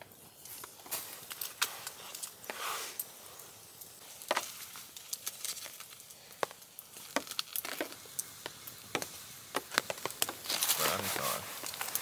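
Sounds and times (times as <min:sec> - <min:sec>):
campfire crackling and popping: 0:00.0 - 0:12.0.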